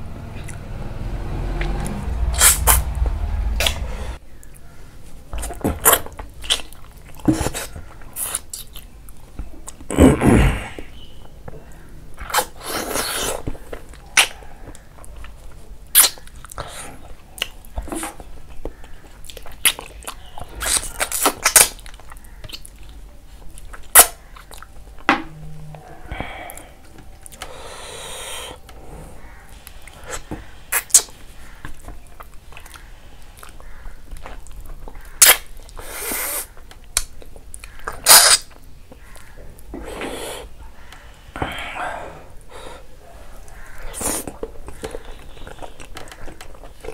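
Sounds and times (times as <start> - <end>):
slurping: 1.6 - 4.2, 38.0 - 38.6
chewing with wet mouth clicks: 5.4 - 9.9, 12.2 - 25.1, 29.6 - 35.8, 36.6 - 39.3, 43.4 - 46.9.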